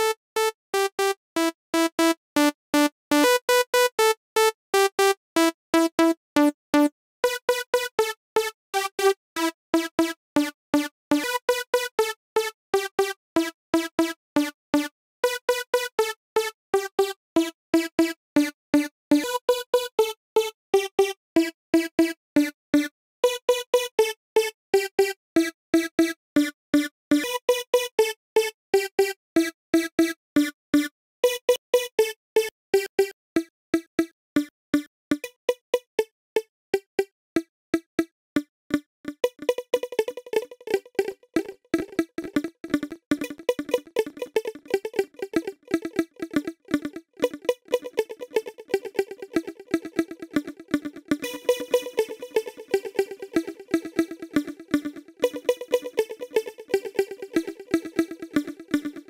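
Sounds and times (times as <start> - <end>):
synthesizer staccato lead: 39.1 - 59.0.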